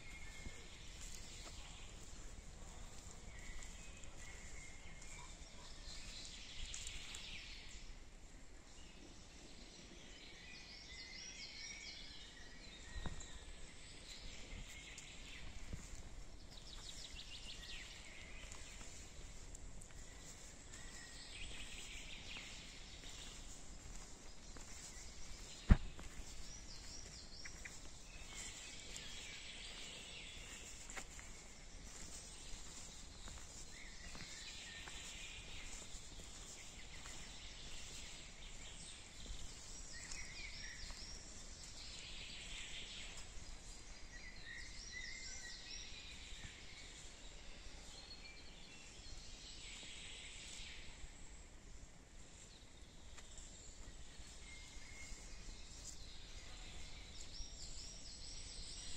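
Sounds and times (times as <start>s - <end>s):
songbirds chirping: 0.0s - 58.9s.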